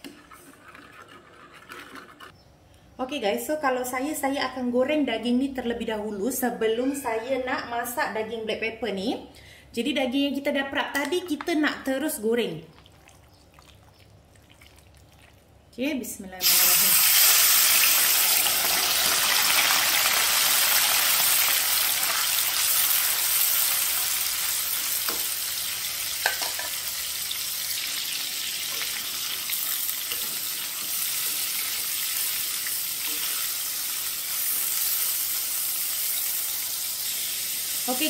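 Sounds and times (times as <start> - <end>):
beef sizzling in hot oil: 16.4 - 38.0.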